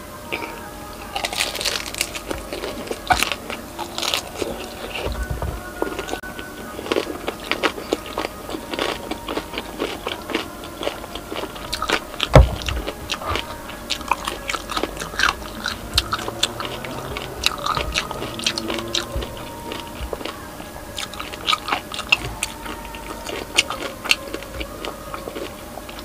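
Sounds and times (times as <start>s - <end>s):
chewing crispy fried skin: 0.3s - 26.0s
loud thump: 12.4s - 12.9s.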